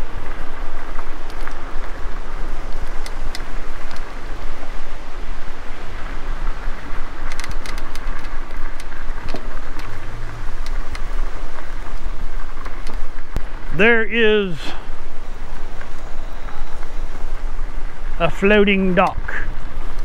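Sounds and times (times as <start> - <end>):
footsteps on dirt path: 0.0 - 18.1
wind buffeting microphone: 0.0 - 20.0.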